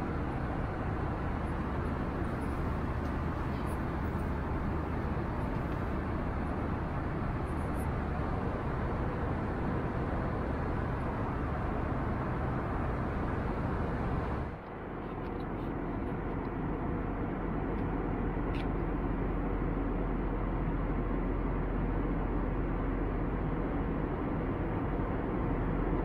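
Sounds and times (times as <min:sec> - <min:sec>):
airflow rush: 0:00.0 - 0:14.6
engine rumble: 0:00.0 - 0:26.0.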